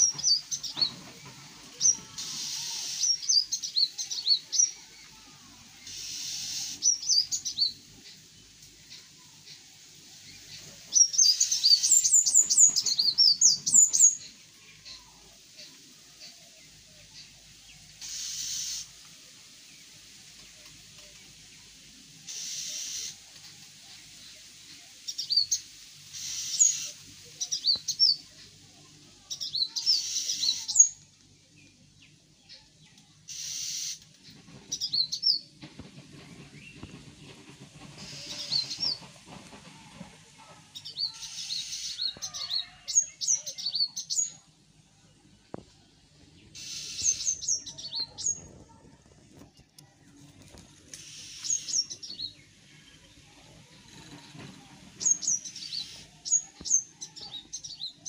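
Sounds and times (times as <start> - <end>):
small birds chirping: 0.0 - 35.6, 40.7 - 58.0
hissy buzzes: 17.9 - 19.9, 22.2 - 24.4, 25.1 - 27.4.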